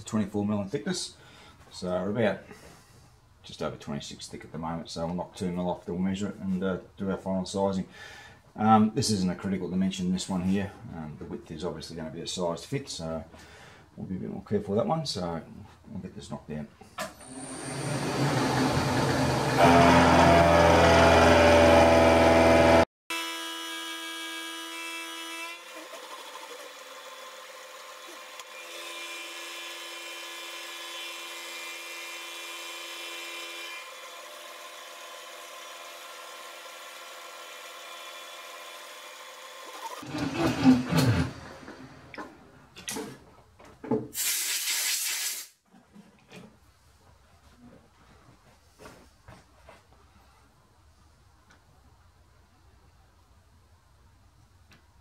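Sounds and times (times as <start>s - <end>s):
milling machine cutting metal: 17.2s - 22.8s
compressed air blast: 44.2s - 45.6s.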